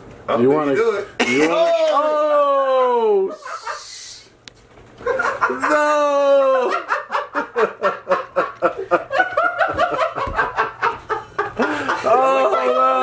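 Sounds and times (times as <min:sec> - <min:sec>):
man laughing hard: 0:01.2 - 0:02.1, 0:03.2 - 0:04.0, 0:05.0 - 0:13.0.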